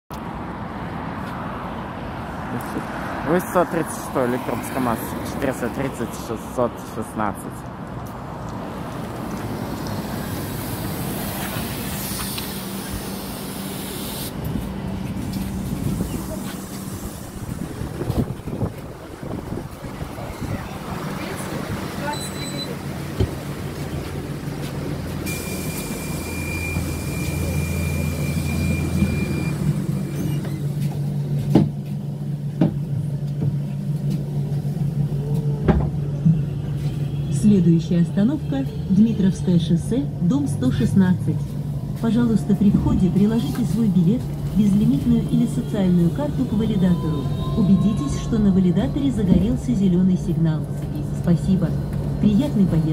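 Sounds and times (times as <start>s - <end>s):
bus tyre and running noise: 7.5s - 52.9s
air hiss: 10.2s - 14.4s.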